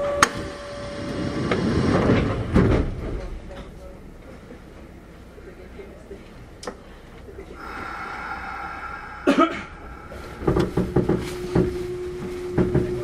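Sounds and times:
electric train humming: 0.0 - 2.5, 7.5 - 13.0
clicks and knocks of train: 1.4 - 3.9, 10.3 - 13.0.

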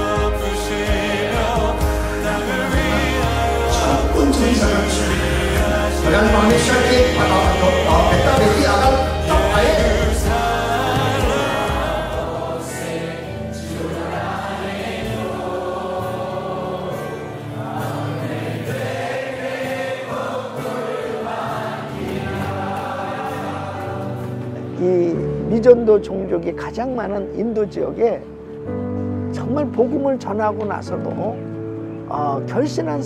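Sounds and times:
choir singing with accompaniment: 0.0 - 24.8.

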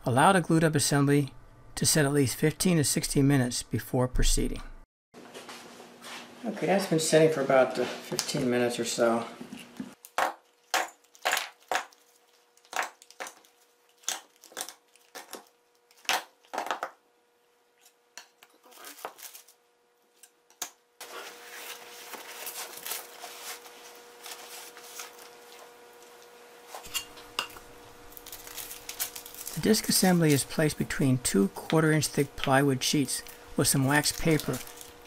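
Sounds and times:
paper rustling and crinkling: 18.6 - 19.6, 21.0 - 26.2, 28.1 - 30.8, 33.2 - 35.0.

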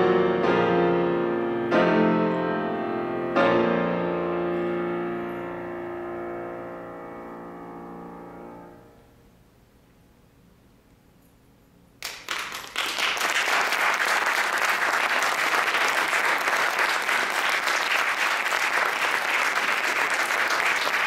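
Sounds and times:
audience applause: 12.0 - 21.0.

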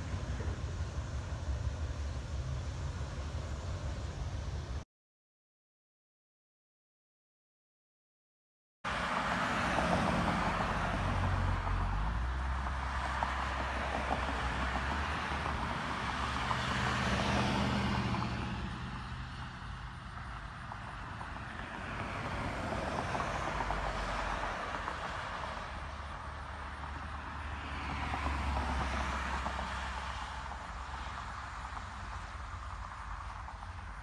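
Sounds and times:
vehicles passing on highway: 0.0 - 4.8, 8.9 - 34.0.

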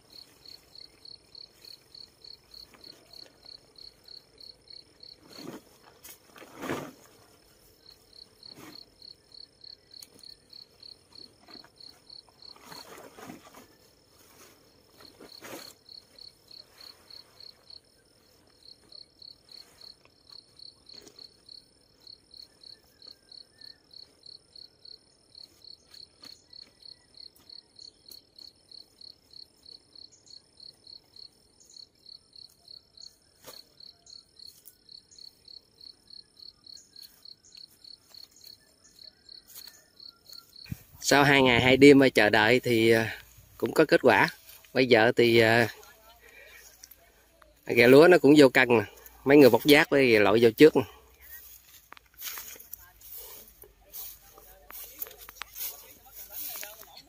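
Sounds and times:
cricket chirping: 0.0 - 57.0
plastic tarpaulin rustling: 5.2 - 7.7, 11.2 - 17.6.

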